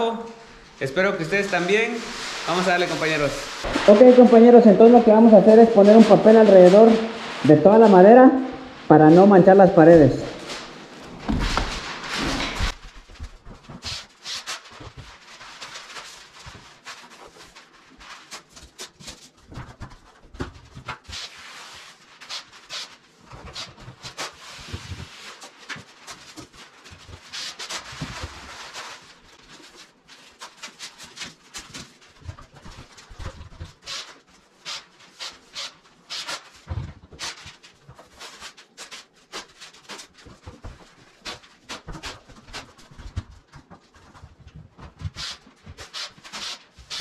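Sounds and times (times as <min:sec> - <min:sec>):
masking paper crinkling: 0:00.8 - 0:47.0.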